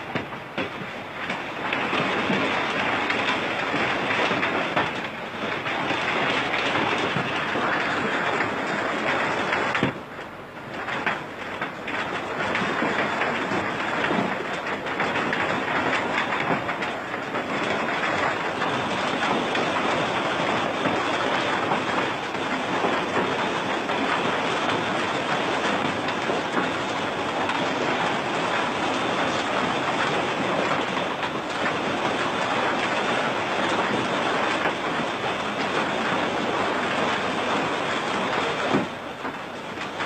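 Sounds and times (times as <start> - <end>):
hailstones falling: 10.7 - 40.0.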